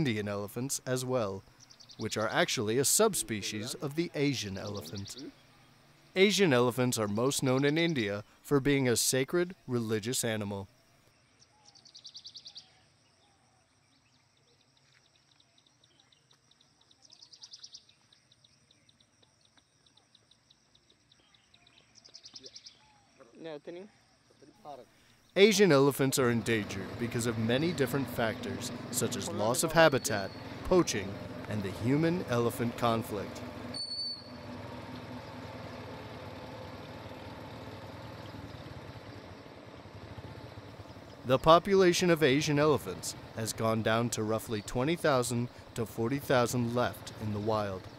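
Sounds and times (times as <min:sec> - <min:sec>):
vehicle engine idling: 0:00.0 - 0:08.4, 0:25.4 - 0:47.9
slow high ticking: 0:26.0 - 0:41.3.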